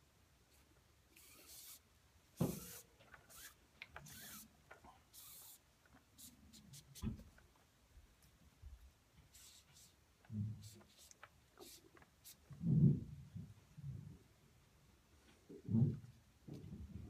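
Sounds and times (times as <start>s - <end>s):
cord swishing through knot: 2.4s - 4.5s.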